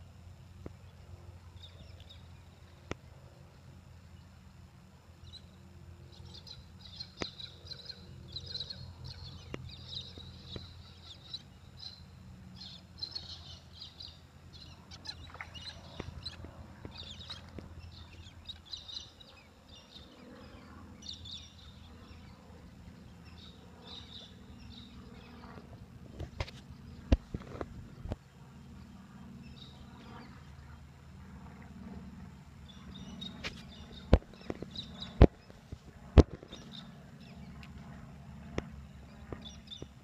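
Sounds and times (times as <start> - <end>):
birds chirping: 5.2 - 28.2.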